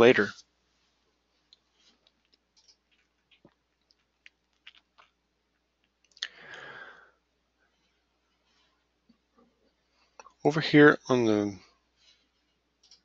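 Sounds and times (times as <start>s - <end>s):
mouth clicks and lip noises: 1.5s - 6.6s
breath: 6.2s - 7.2s.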